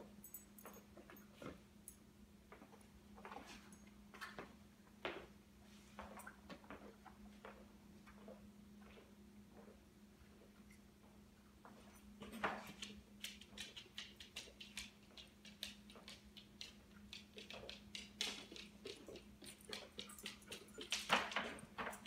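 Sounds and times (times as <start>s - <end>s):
dog toenails clicking on floor: 11.6s - 22.0s.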